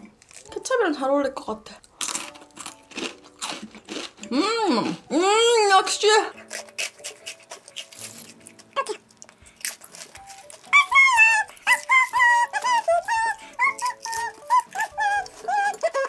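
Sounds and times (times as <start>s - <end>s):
potato chips crunching: 0.0s - 0.7s, 1.8s - 5.3s, 6.3s - 16.0s
high whistled tune: 10.2s - 16.0s.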